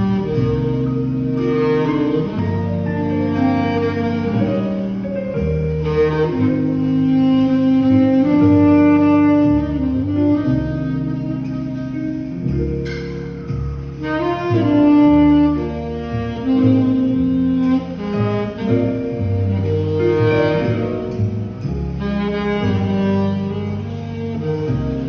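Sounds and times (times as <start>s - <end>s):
accompaniment with bass line: 0.0s - 25.0s
tenor saxophone ballad melody: 0.0s - 25.0s.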